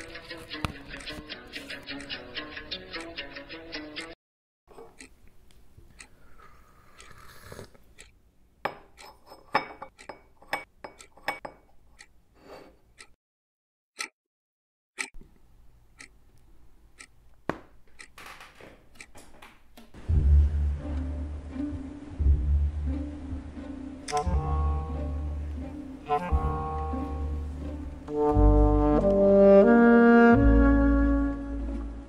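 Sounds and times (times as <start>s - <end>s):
music: 0.0s - 4.2s, 20.0s - 32.0s.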